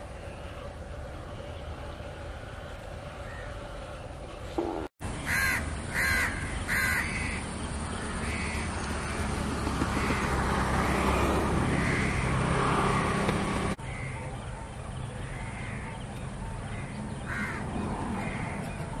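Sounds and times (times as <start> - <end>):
crows cawing: 5.2 - 7.4, 8.2 - 9.2, 9.8 - 13.2, 16.8 - 18.6.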